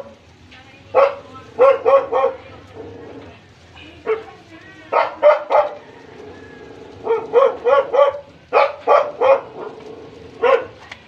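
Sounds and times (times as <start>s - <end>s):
dog barking: 0.9s - 2.4s, 4.9s - 5.9s, 7.0s - 10.8s.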